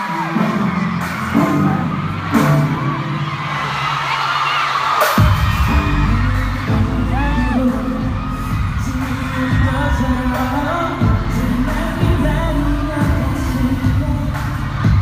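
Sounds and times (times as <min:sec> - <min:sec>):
heavy bass beat: 0:05.0 - 0:15.0
male voices singing: 0:05.7 - 0:15.0.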